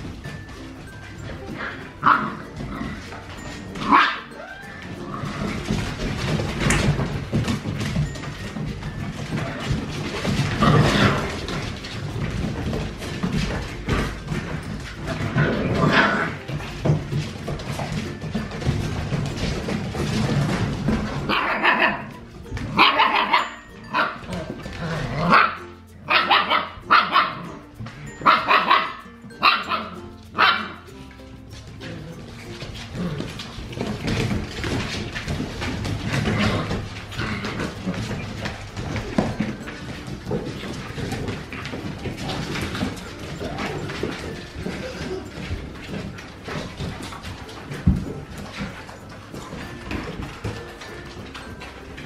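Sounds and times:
puppy paws scrabbling on floor: 0.0 - 52.0
puppy squeal: 3.9 - 5.0
soft thuds of puppies bumping: 5.3 - 21.5.

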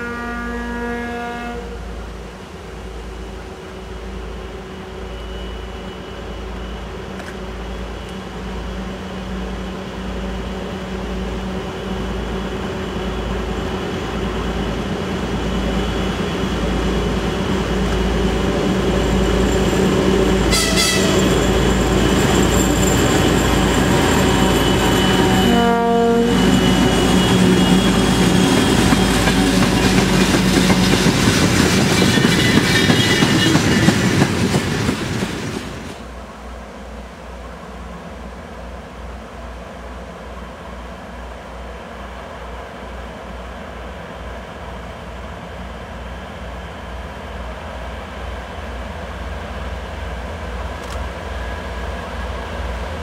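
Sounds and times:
train horn blast: 0.0 - 2.0, 20.4 - 21.4, 25.0 - 27.9
diesel locomotive engine throbbing: 0.1 - 36.4
locomotive high whistle: 20.4 - 29.6.

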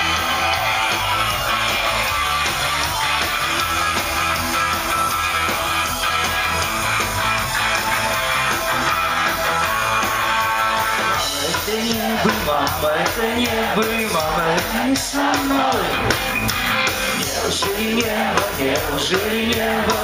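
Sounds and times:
rock band playing live: 0.0 - 20.0
strummed guitars: 0.0 - 20.0.

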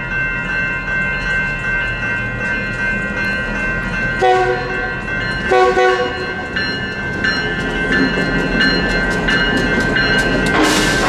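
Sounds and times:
railroad crossing bells ringing: 0.0 - 11.0
locomotive horn blast: 4.2 - 6.5.

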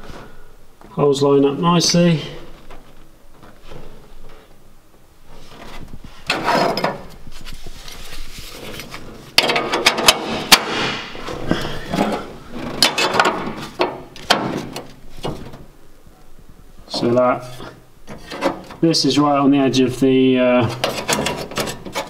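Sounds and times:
steel plate scraping and clanking: 6.2 - 7.0, 17.4 - 18.8, 20.6 - 22.0.

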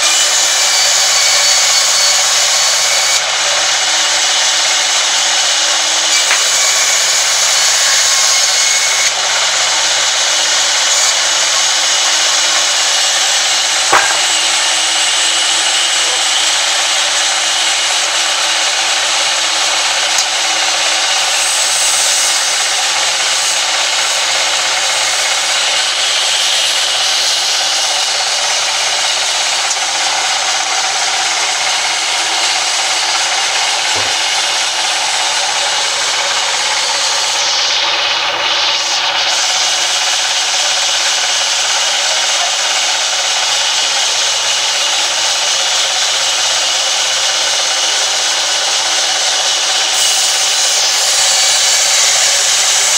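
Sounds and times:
band saw cutting timber: 0.0 - 52.9
sharp knock: 13.7 - 14.7, 33.9 - 34.2.

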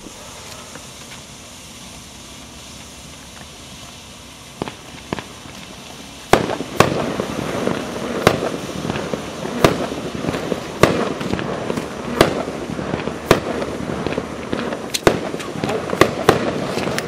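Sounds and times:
smoke fireworks hissing: 0.0 - 17.0
sharp pops: 4.6 - 17.0.

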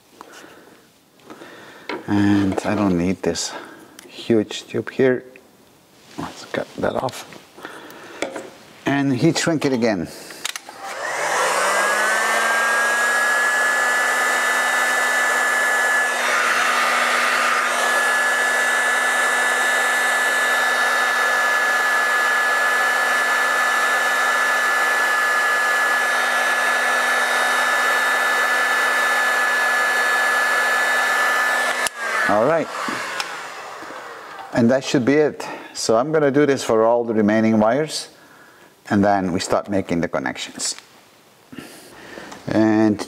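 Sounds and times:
heat gun fan whine: 10.3 - 34.7.

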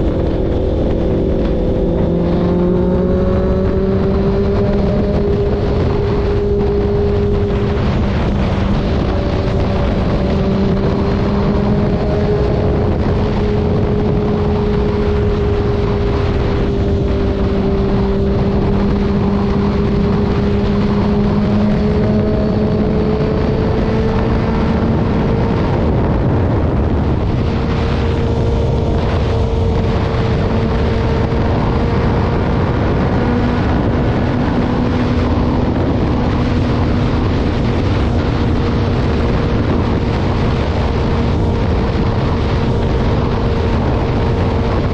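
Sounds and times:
motorcycle engine cruising: 0.0 - 44.9
wind buffeting microphone: 0.0 - 44.9.

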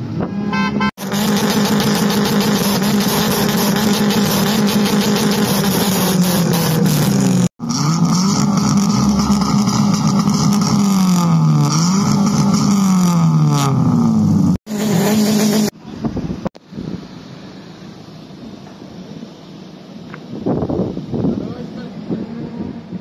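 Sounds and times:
car engine revving: 0.0 - 15.8
car engine idling: 0.0 - 23.0
wind noise on microphone: 15.8 - 17.2, 20.2 - 23.0.

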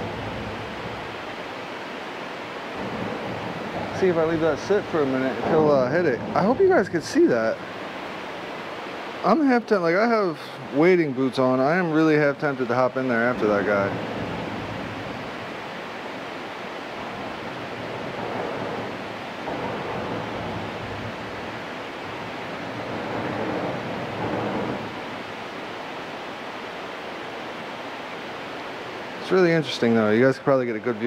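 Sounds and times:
water rushing over spillway: 0.0 - 31.0.

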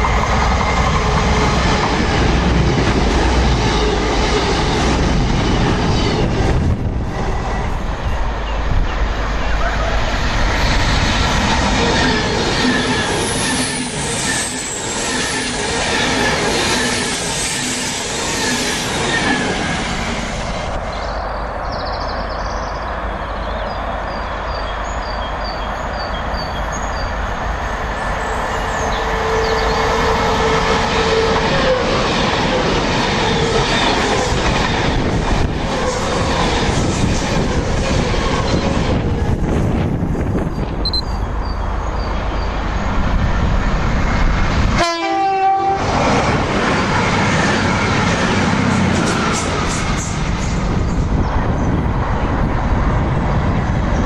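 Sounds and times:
diesel train approaching: 0.0 - 54.0
electric train passing at speed: 0.0 - 54.0
train horn: 44.8 - 46.0.

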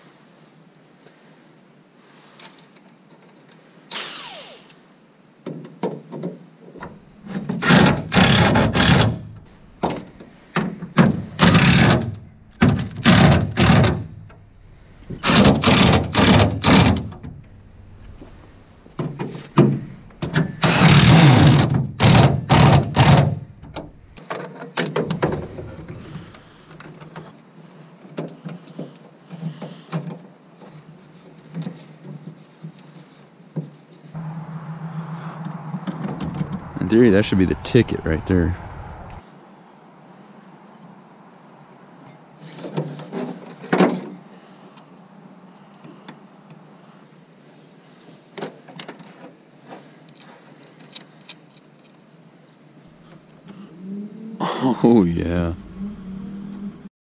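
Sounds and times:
cordless power drill bursts: 3.9 - 4.8, 15.2 - 17.0, 20.4 - 23.4.

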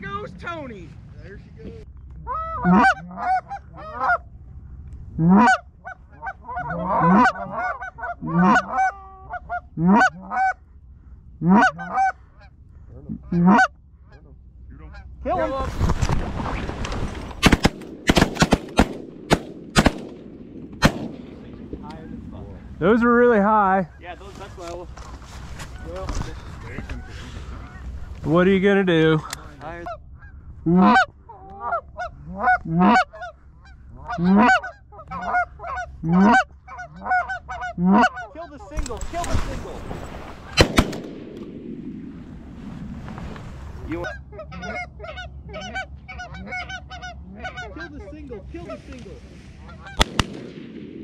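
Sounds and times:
goose calls honking: 2.2 - 4.3, 5.2 - 10.6, 11.4 - 15.2, 29.8 - 38.6, 43.9 - 48.8.

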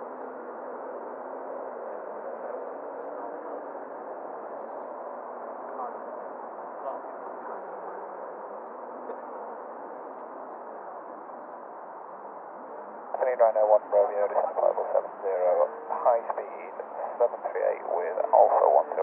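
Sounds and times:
faint voice fragments: 13.2 - 19.0
radio hiss: 13.2 - 19.0.

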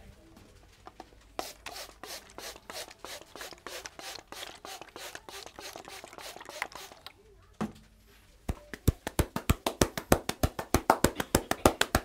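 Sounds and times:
spray bottle spritzing: 1.4 - 7.2.

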